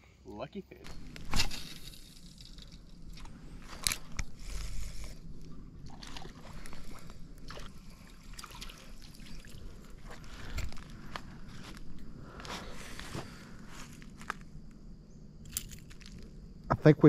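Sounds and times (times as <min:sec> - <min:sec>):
fishing rod rustling and clicking: 0:00.9 - 0:07.8, 0:10.0 - 0:14.5, 0:15.4 - 0:16.3.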